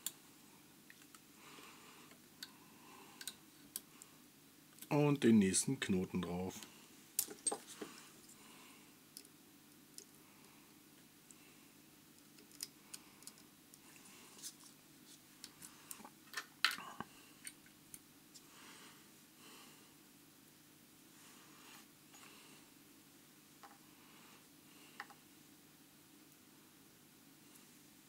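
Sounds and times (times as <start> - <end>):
small metal clicks and ticks: 3.2 - 3.9, 12.2 - 13.5.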